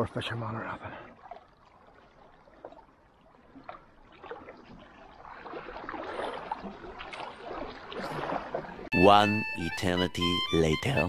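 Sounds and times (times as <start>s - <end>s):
water lapping against rocks: 0.9s - 8.9s.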